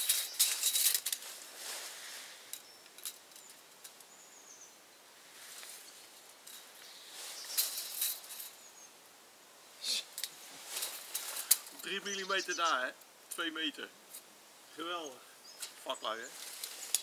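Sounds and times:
tape measure rustling and clicking: 0.0 - 1.4, 7.4 - 8.6, 10.2 - 11.9, 16.4 - 17.0
faint bird chirp: 2.4 - 9.1, 11.2 - 13.0, 14.6 - 17.0.

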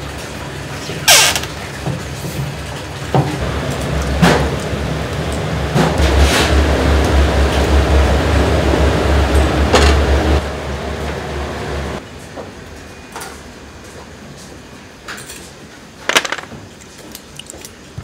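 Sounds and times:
gas burner roaring: 3.2 - 12.0
shells clattering on metal tray: 16.1 - 16.5.

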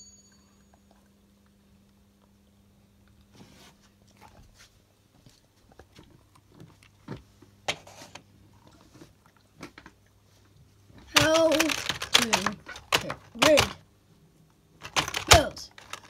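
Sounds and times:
rubber puppet handling noise: 11.0 - 13.8, 14.8 - 16.0.

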